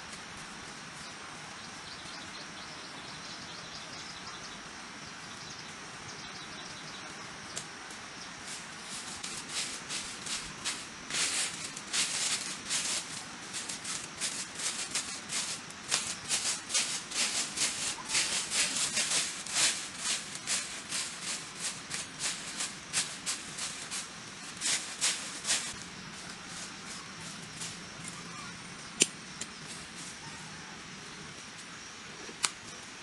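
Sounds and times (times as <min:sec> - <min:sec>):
dry leaves swept across ground: 0:07.7 - 0:28.6, 0:29.5 - 0:30.7.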